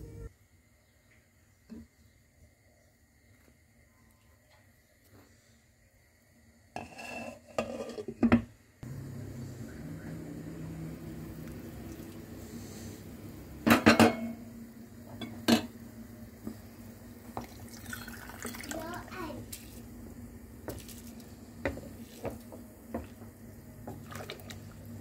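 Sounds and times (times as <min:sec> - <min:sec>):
steady low hum: 0:08.8 - 0:17.8
cookware clanking: 0:13.6 - 0:14.5, 0:15.1 - 0:15.8.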